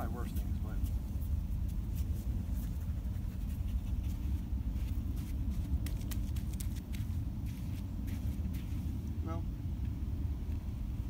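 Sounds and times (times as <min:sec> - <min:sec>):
low wind rumble on microphone: 0:00.0 - 0:11.0.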